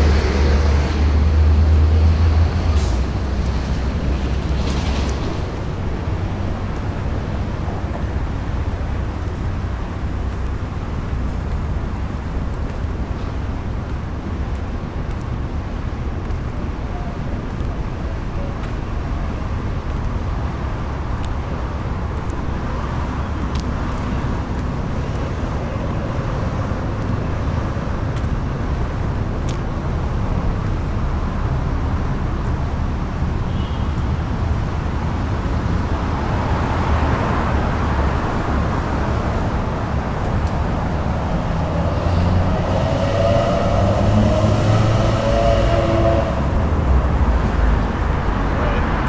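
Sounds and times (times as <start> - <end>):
vehicle passing: 0.0 - 8.3, 35.6 - 49.0
bus moving off: 0.0 - 49.0
traffic rumble: 0.0 - 49.0.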